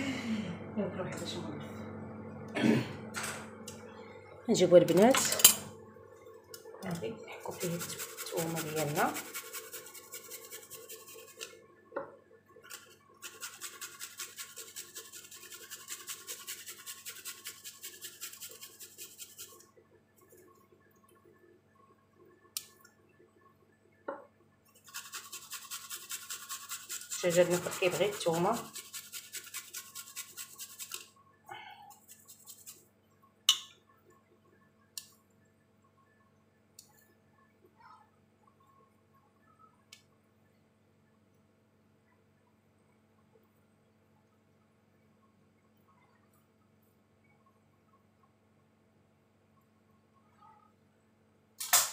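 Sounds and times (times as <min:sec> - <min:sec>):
garlic rasping on metal grater: 0:07.5 - 0:11.5, 0:13.2 - 0:19.5, 0:24.8 - 0:31.0, 0:31.9 - 0:32.8.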